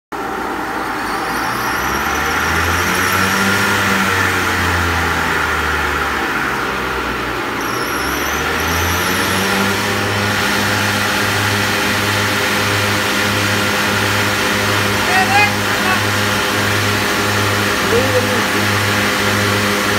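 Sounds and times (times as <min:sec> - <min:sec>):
dryer motor hum: 0:00.2 - 0:19.9
low pulsing throb: 0:00.5 - 0:07.3.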